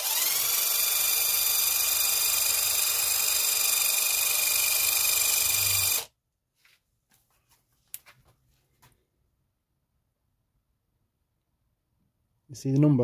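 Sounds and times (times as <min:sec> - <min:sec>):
impact driver motor whine: 0:00.0 - 0:06.1.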